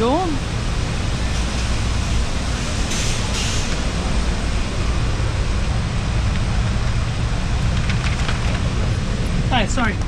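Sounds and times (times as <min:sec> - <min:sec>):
diesel truck engine idling: 0:00.0 - 0:10.0.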